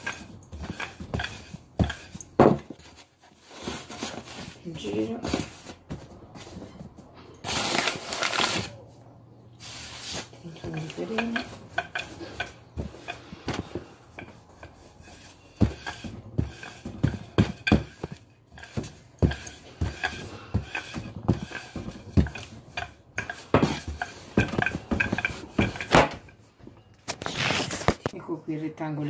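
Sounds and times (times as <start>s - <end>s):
rolling pin knocking on dough: 0.0s - 2.7s, 10.5s - 26.2s.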